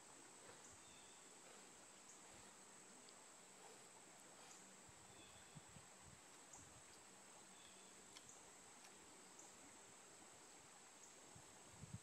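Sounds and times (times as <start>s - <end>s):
soft ticks: 3.0s - 3.2s, 6.3s - 9.5s.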